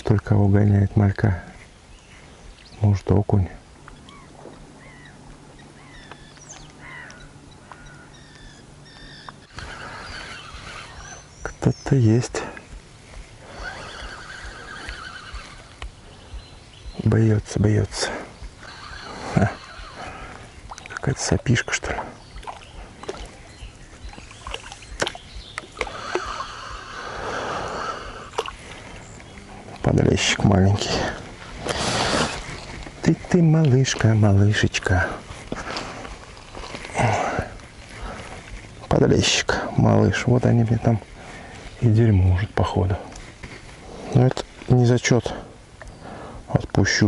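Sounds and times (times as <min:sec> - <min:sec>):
faint steady hum: 0:00.0 - 0:47.0
birds chirping and whistling: 0:03.9 - 0:33.2
water splashing and sloshing: 0:18.6 - 0:27.0, 0:28.2 - 0:34.0, 0:34.7 - 0:38.9.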